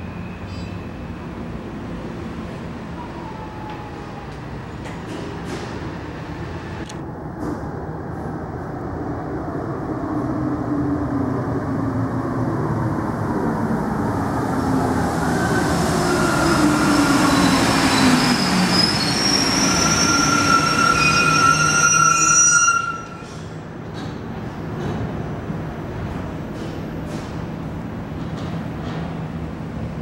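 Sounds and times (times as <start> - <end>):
metro train pulling into station: 0.0 - 30.0
brake squeals: 0.1 - 1.2, 16.1 - 23.6.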